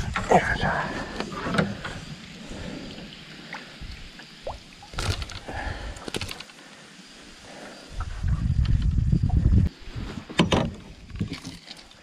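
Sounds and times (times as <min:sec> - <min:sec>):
water lapping and dripping: 0:00.0 - 0:08.2, 0:11.0 - 0:12.0.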